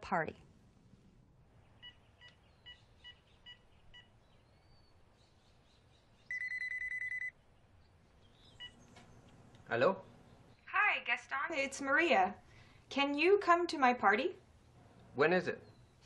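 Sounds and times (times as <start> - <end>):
phone ringing electronic trill: 6.3 - 7.3
telephone keypad beeps: 6.3 - 7.3.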